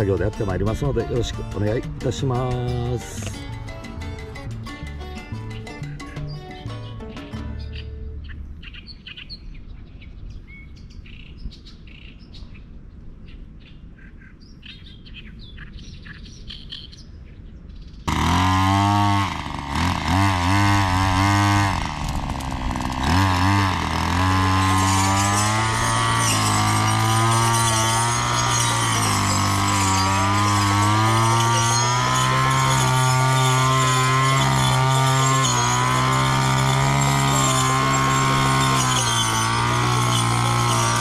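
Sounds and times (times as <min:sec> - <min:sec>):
brush cutter engine revving: 0:00.0 - 0:03.5, 0:18.1 - 0:41.0
birds chirping: 0:05.2 - 0:18.1
saw blade cutting weeds: 0:18.1 - 0:41.0.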